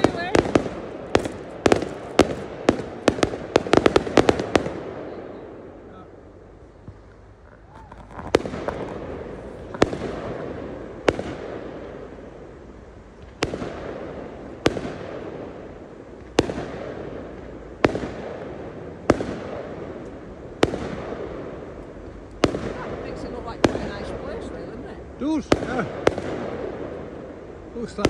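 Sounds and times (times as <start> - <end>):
firework shells bursting: 0.0 - 5.0, 6.9 - 12.3.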